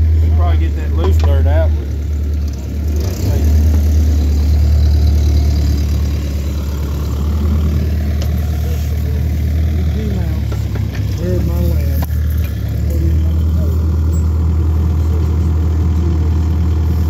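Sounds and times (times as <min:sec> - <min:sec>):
excavator engine idling: 0:00.0 - 0:17.0.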